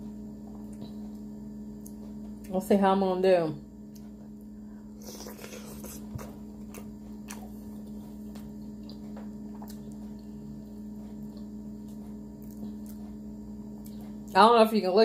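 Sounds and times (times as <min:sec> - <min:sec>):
low electrical hum: 0:00.0 - 0:15.0
wet chewing and lip smacks: 0:05.0 - 0:10.4, 0:11.0 - 0:13.2.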